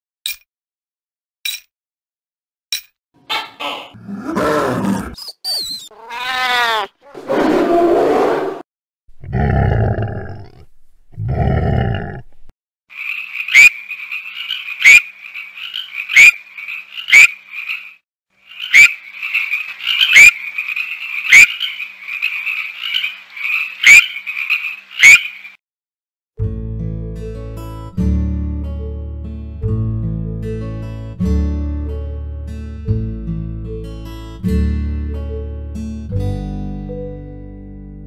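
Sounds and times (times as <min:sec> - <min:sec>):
cat-like meow: 0:05.9 - 0:06.9
treefrog trilling: 0:05.9 - 0:06.9, 0:12.9 - 0:25.6
rough cry: 0:05.9 - 0:08.6.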